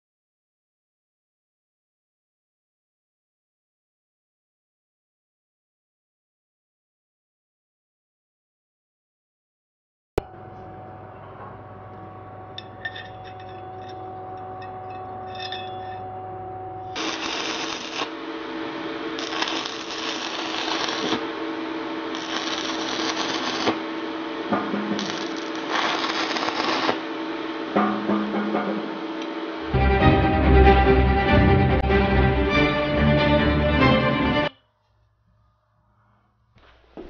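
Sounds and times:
steady hum: 0:10.2 - 0:37.0
crackling welding arc: 0:17.0 - 0:18.2, 0:19.1 - 0:21.4, 0:22.0 - 0:23.9, 0:24.9 - 0:27.1.

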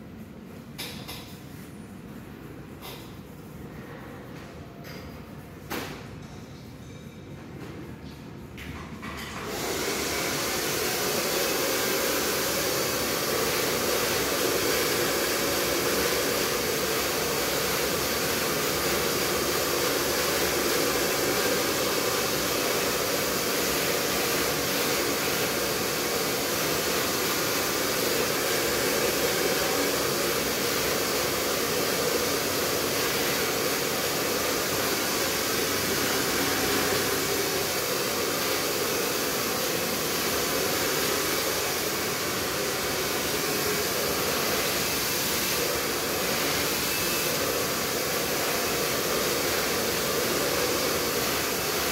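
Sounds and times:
hair dryer blowing: 0:09.3 - 0:51.9.

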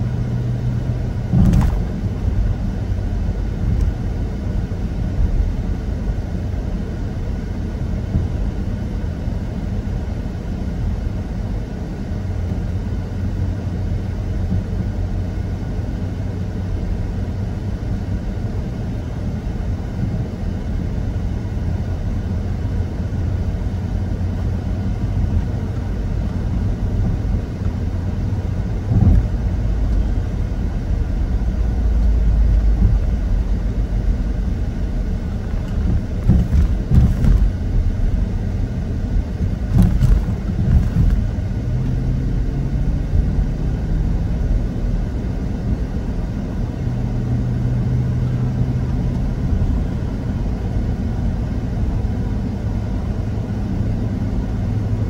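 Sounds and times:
low vehicle rumble: 0:00.0 - 0:55.0
thump: 0:01.3 - 0:01.9, 0:36.2 - 0:37.5, 0:39.7 - 0:41.2.

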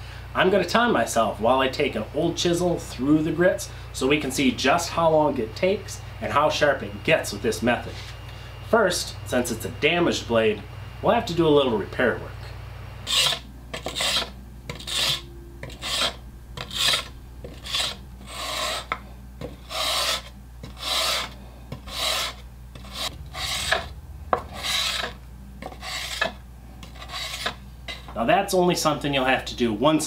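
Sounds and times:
chisel scraping on sandpaper: 0:13.1 - 0:28.1.

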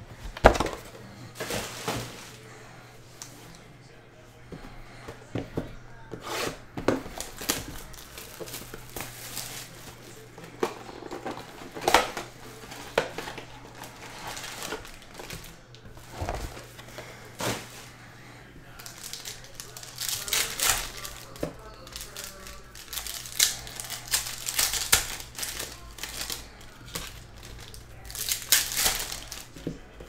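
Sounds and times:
foil wrappers crinkling: 0:00.1 - 0:03.7, 0:06.0 - 0:30.0
packs tapping down: 0:00.2 - 0:02.5.

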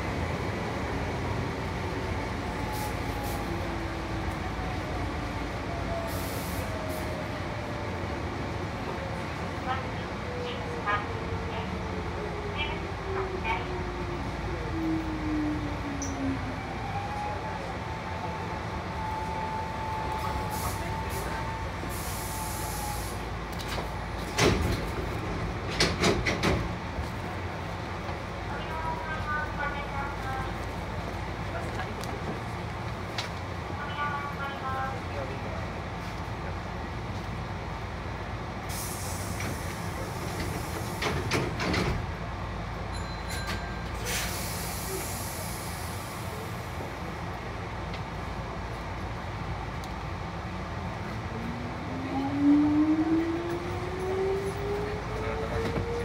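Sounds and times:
compressed air hiss: 0:21.9 - 0:23.2, 0:38.7 - 0:39.9, 0:44.0 - 0:46.3.

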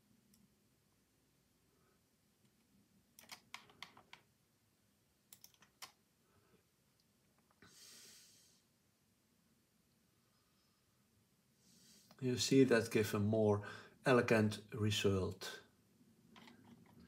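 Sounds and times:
soft hiss: 0:00.0 - 0:17.0
computer mouse clicking: 0:03.2 - 0:04.3, 0:05.3 - 0:06.0.

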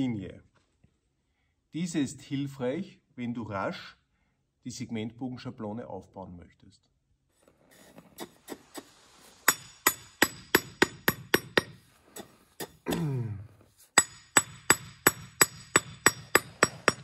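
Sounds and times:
hammer ringing on stone: 0:09.5 - 0:11.8, 0:14.0 - 0:17.0.

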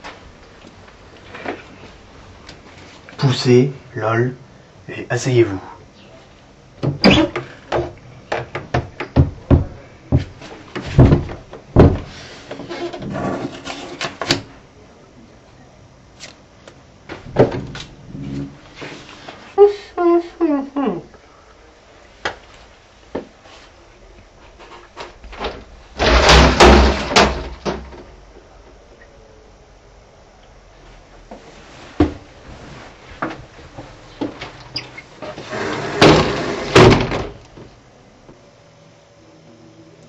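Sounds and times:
knocking on a door: 0:07.7 - 0:12.1.

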